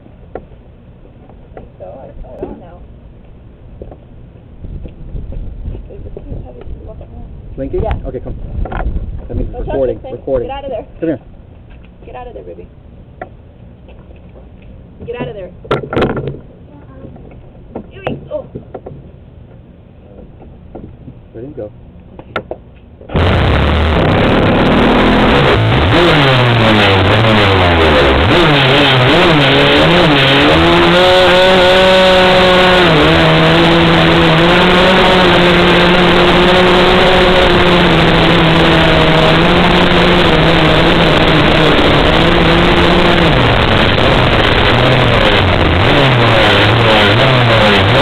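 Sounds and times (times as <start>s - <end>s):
radio-controlled car engine revving: 23.1s - 48.0s.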